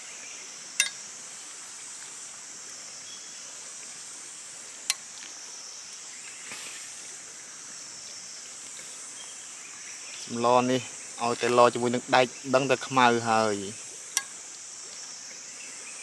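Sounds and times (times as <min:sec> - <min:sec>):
insect chorus shrilling: 0:00.0 - 0:16.0.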